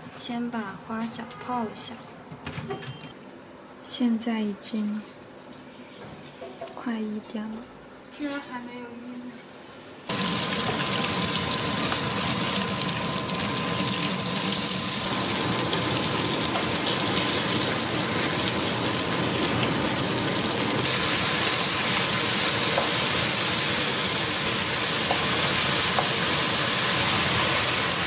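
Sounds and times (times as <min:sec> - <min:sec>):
food sizzling in a wok: 0:10.1 - 0:28.0.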